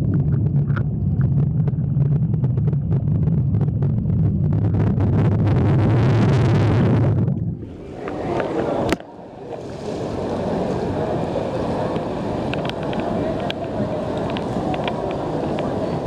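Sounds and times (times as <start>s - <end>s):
low rumble: 0.0s - 8.2s
wind and sea: 6.6s - 16.0s.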